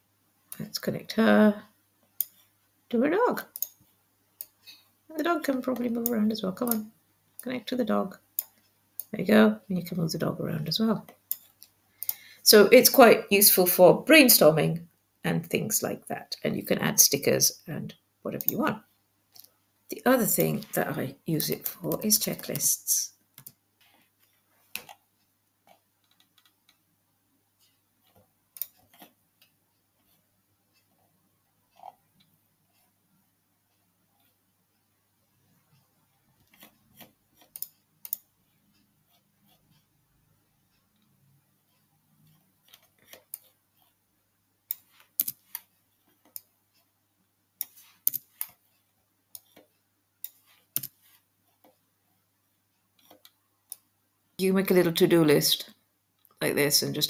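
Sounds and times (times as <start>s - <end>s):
computer mouse clicks: 3.4s - 3.8s, 11.0s - 12.3s, 18.4s - 18.7s, 23.4s - 24.0s, 25.6s - 26.8s, 27.6s - 31.0s, 35.7s - 40.0s, 41.7s - 44.0s, 44.7s - 46.9s, 47.6s - 48.7s, 49.3s - 51.8s, 53.0s - 53.9s
mouse and keyboard clicks: 36.4s - 39.9s, 44.7s - 46.5s, 47.6s - 48.6s, 49.3s - 51.8s.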